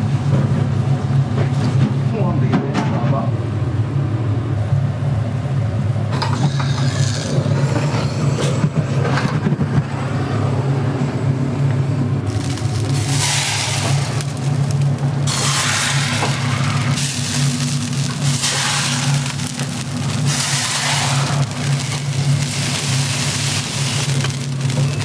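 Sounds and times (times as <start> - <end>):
steady low hum: 0.0 - 25.0
scraping on grill: 6.1 - 9.3, 12.3 - 25.0
pork sizzling on grill: 12.2 - 25.0.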